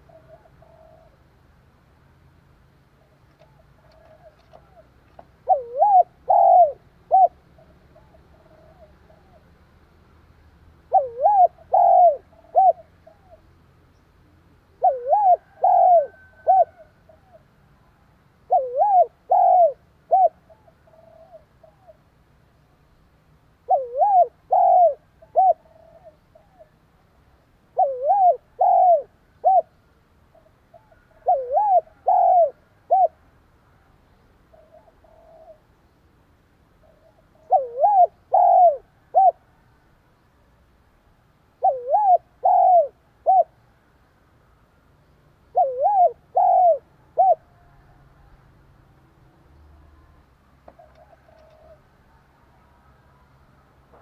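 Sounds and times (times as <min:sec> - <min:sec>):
dove cooing: 0:00.0 - 0:01.3, 0:03.0 - 0:09.6, 0:10.8 - 0:13.5, 0:14.6 - 0:17.6, 0:18.4 - 0:22.1, 0:23.6 - 0:26.8, 0:27.7 - 0:33.2, 0:34.5 - 0:35.8, 0:36.8 - 0:39.6, 0:41.6 - 0:43.6, 0:45.5 - 0:48.4, 0:49.6 - 0:52.8.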